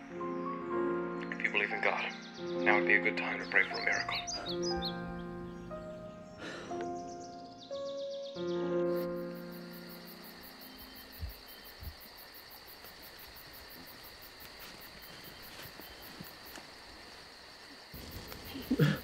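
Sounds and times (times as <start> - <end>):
insects chirping: 0.0 - 19.0
soft low thumps: 11.1 - 12.1.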